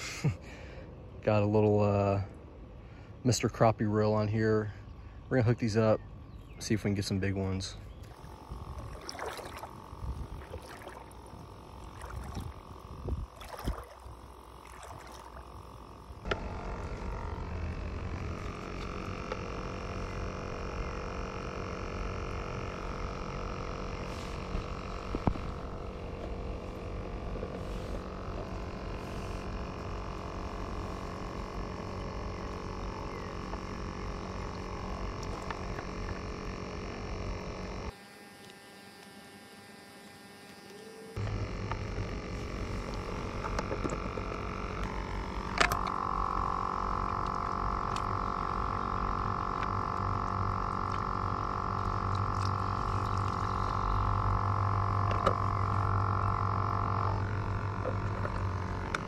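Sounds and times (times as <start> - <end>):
aerator humming: 0.0 - 59.0
feet splashing through water: 8.0 - 15.7
water washing: 8.1 - 15.7.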